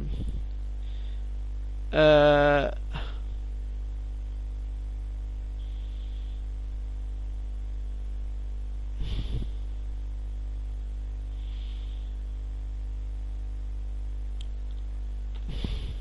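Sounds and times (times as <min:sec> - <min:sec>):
low electrical hum: 0:00.0 - 0:16.0
breath close to microphone: 0:09.0 - 0:09.7, 0:11.2 - 0:12.3, 0:15.4 - 0:16.0.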